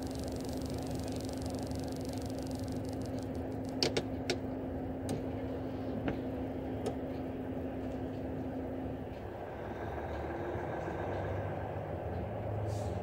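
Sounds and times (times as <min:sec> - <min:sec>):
sharp ticks: 0:00.0 - 0:04.4
truck engine hum from cab: 0:00.0 - 0:13.0.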